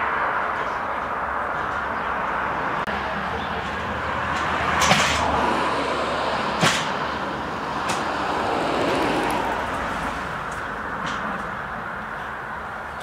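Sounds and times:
passing traffic: 0:00.0 - 0:13.0
sharp knocks: 0:06.6 - 0:07.1.

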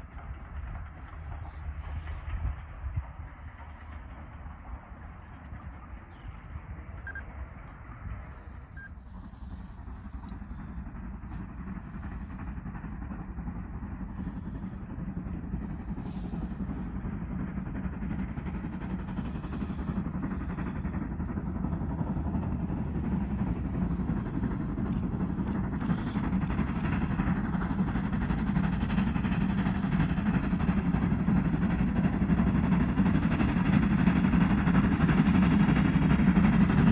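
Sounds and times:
steam locomotive rumble: 0:00.0 - 0:36.9.

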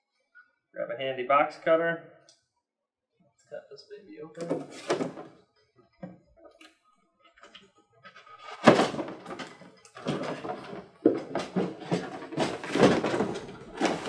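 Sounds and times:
cardboard flaps scraping and rustling: 0:04.4 - 0:05.3, 0:08.5 - 0:14.0.

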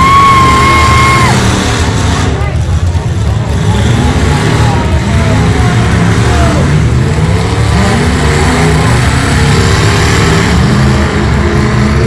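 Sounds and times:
car engines revving: 0:00.0 - 0:12.0.

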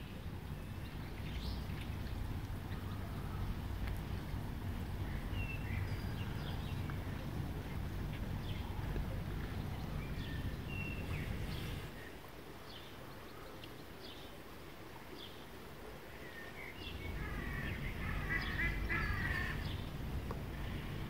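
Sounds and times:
birds chirping: 0:00.0 - 0:14.3, 0:16.2 - 0:21.0
waterfowl calling: 0:17.1 - 0:19.9.

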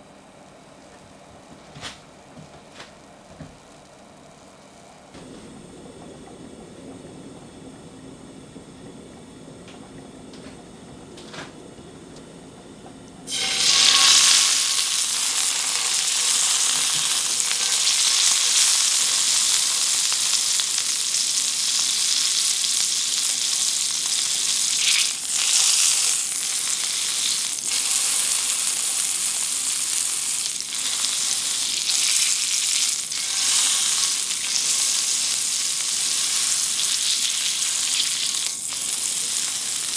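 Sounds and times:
meat sizzling in frying pan: 0:13.3 - 0:39.9.

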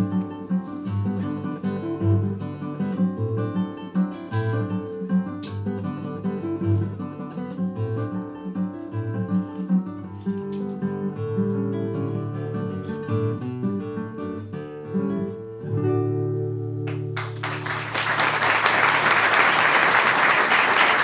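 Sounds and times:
classical guitar playing: 0:00.0 - 0:17.9
audience applause: 0:16.9 - 0:21.0.

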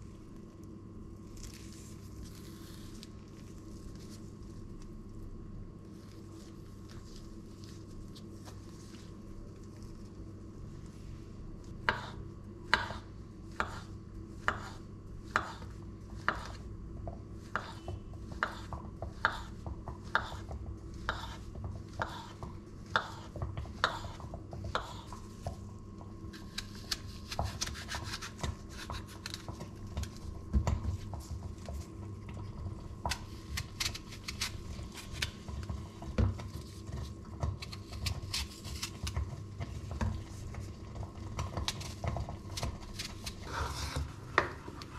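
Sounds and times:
knife slicing on cutting board: 0:43.0 - 0:44.5
knife scraping: 0:43.0 - 0:44.9.

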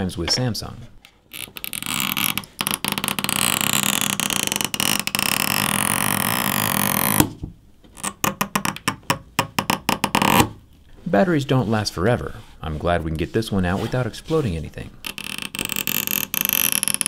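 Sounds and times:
adhesive tabs stretching and tearing: 0:01.3 - 0:07.3, 0:08.0 - 0:09.0, 0:09.6 - 0:10.6, 0:15.0 - 0:17.0.

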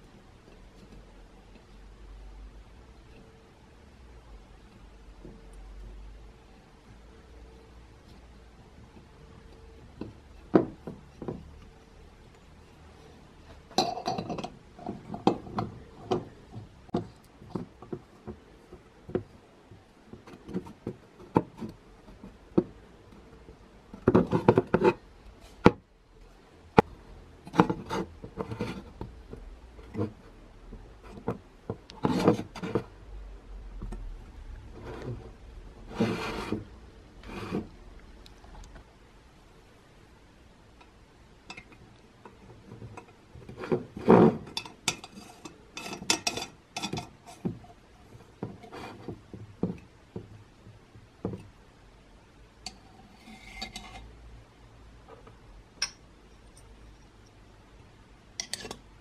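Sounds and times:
metal parts rubbing and scraping: 0:34.7 - 0:37.7, 0:52.7 - 0:54.2.

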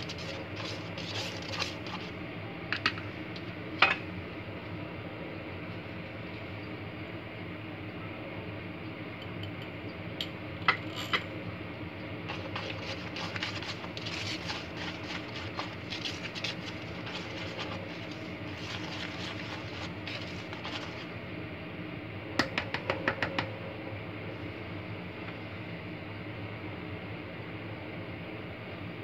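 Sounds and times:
whisk scratching through flour: 0:00.0 - 0:02.2, 0:12.3 - 0:21.2.

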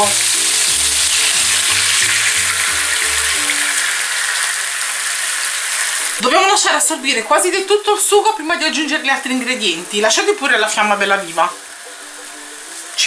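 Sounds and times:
wine pouring into pan: 0:00.0 - 0:07.2
meat sizzling in a hot pan: 0:00.0 - 0:13.0.

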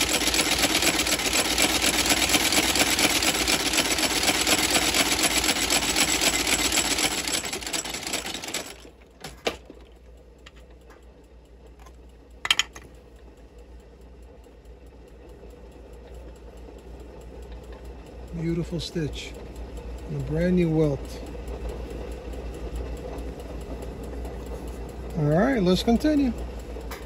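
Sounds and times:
stitching machine running fast: 0:00.0 - 0:09.7, 0:17.0 - 0:27.0.

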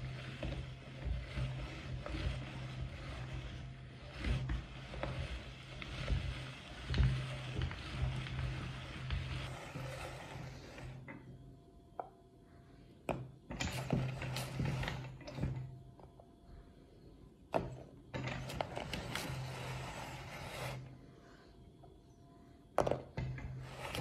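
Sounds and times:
meat grinder grinding and clicking: 0:00.0 - 0:10.8.

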